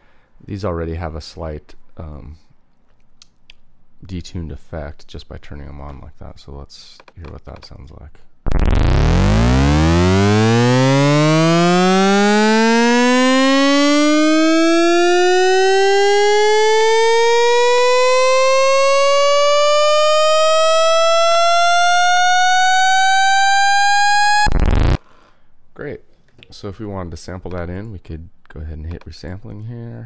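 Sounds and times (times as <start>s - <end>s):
synth tone rising in pitch: 8.5s - 25.0s.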